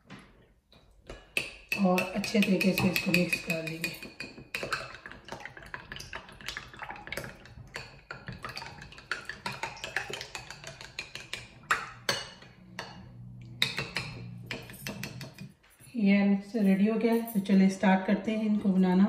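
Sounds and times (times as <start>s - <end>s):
spoon clinking in ceramic bowl: 1.4s - 5.0s, 7.8s - 15.6s.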